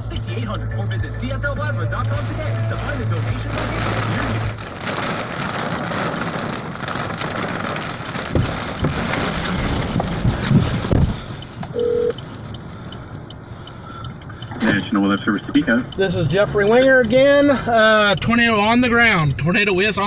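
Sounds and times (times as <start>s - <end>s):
rain lashing a vehicle: 0.0s - 20.0s
wind buffeting microphone: 4.5s - 11.6s
short single-tone beep: 11.7s - 12.2s.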